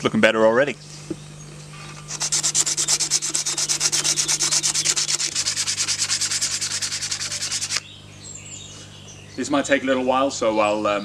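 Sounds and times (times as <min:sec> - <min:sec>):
sandpaper scratching on metal: 0:02.1 - 0:07.8.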